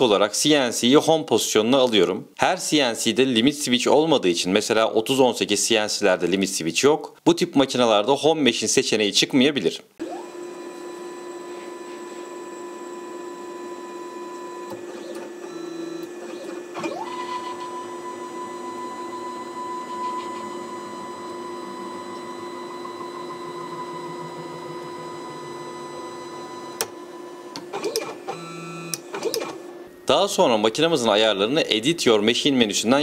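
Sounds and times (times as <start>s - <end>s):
stepper motors whining: 14.1s - 30.1s.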